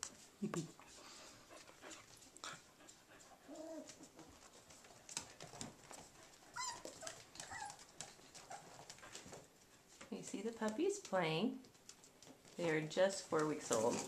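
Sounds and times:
paws scratching and tapping: 0:01.6 - 0:14.0
puppies whimpering: 0:06.5 - 0:08.8
puppy squeak: 0:06.6 - 0:07.8.

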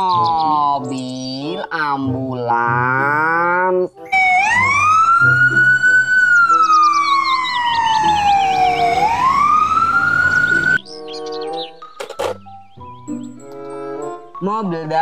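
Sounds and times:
ambulance siren wailing: 0:04.1 - 0:10.8.

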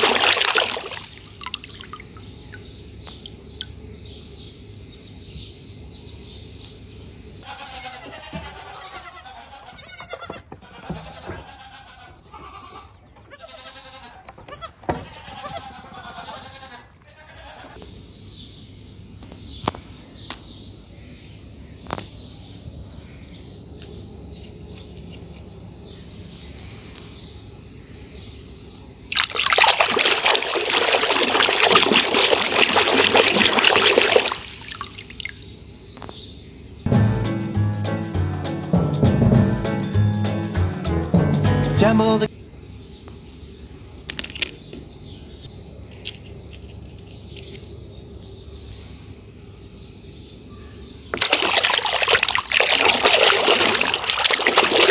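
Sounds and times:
hands splashing in soapy water: 0:00.0 - 0:02.0, 0:29.1 - 0:35.4, 0:51.2 - 0:54.9
goat kids bleating: 0:07.4 - 0:17.8
music: 0:36.9 - 0:42.3.

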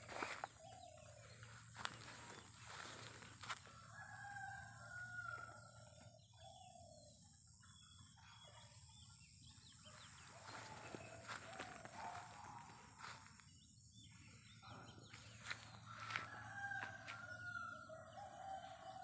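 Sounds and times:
rooster crowing: 0:01.8 - 0:05.8, 0:15.8 - 0:19.0.

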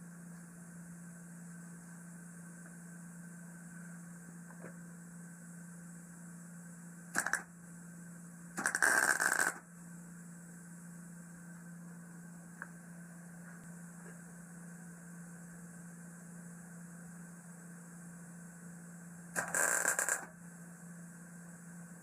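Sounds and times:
steady low hum: 0:00.0 - 0:22.0
arc welding crackle: 0:07.1 - 0:07.5, 0:08.6 - 0:09.6, 0:19.4 - 0:20.3.

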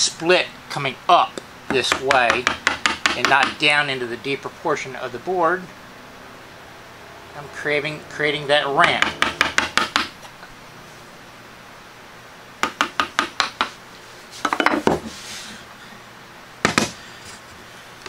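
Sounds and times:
mallet tapping chisel: 0:01.7 - 0:03.6, 0:08.8 - 0:10.2, 0:12.6 - 0:13.8.

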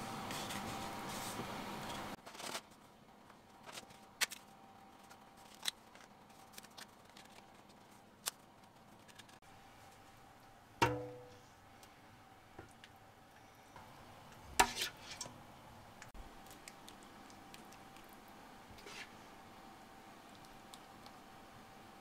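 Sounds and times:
kitchenware ringing knock: 0:10.8 - 0:11.3.

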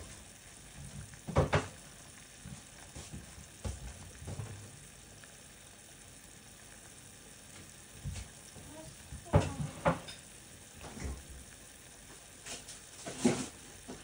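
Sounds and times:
pot of vegetables boiling: 0:00.0 - 0:14.0
sharp pops or knocks: 0:00.8 - 0:01.8, 0:02.4 - 0:04.6.

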